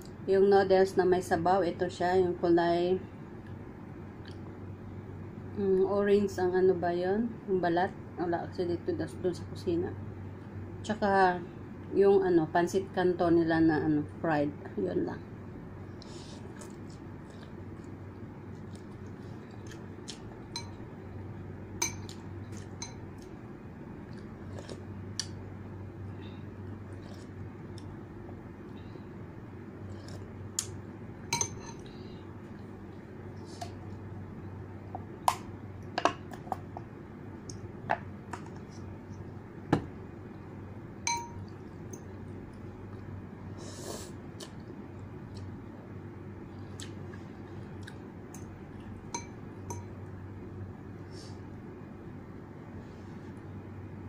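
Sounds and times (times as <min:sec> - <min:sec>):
cutlery clinking on ceramic bowl: 0:20.6 - 0:20.8, 0:21.8 - 0:22.2, 0:31.3 - 0:31.8, 0:41.1 - 0:42.0.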